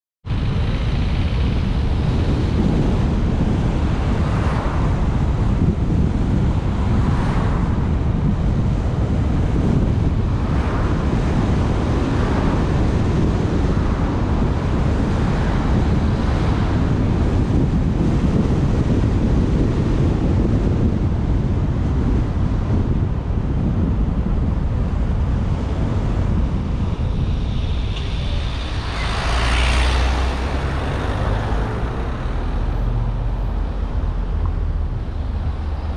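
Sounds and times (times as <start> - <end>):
car road and wind noise: 0.2 - 35.9
oncoming cars passing: 24.9 - 35.9.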